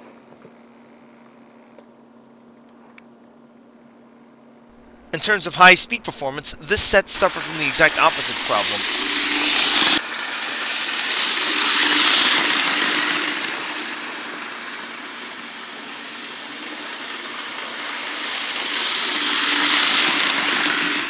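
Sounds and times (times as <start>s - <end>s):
model train running on track: 5.2s - 21.0s.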